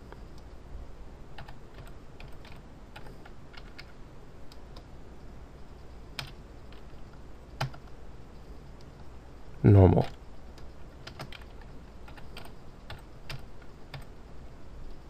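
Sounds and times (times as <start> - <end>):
keyboard typing: 1.4 - 4.0, 6.2 - 6.9, 7.6 - 7.9, 10.6 - 14.1
loud keyboard clicks: 6.2 - 6.9, 7.6 - 7.9, 10.6 - 14.1.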